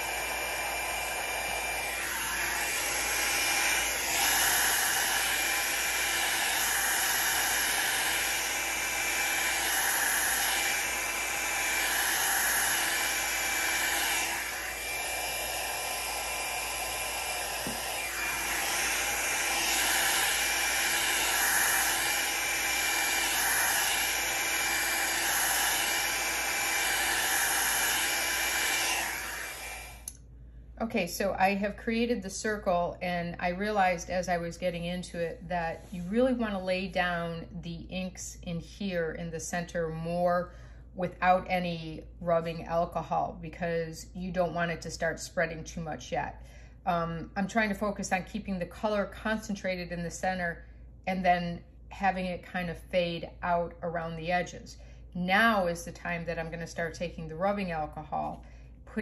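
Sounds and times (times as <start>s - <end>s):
hair dryer running: 0.0s - 30.2s, 55.3s - 58.4s.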